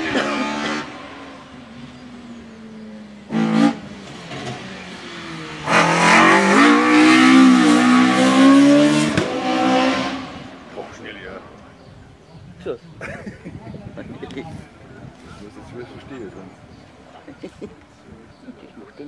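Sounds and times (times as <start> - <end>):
race car engine revving: 0.0 - 11.9.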